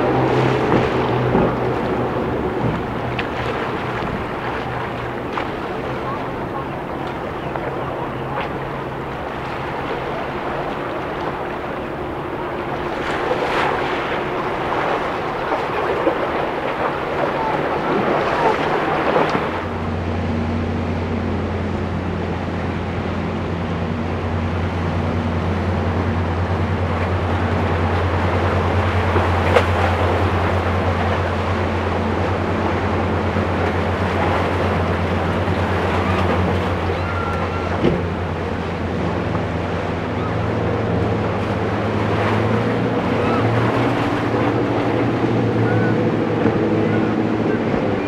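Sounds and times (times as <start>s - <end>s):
boat engines droning: 0.0s - 48.0s
surf: 0.0s - 48.0s
wind on microphone: 0.0s - 48.0s.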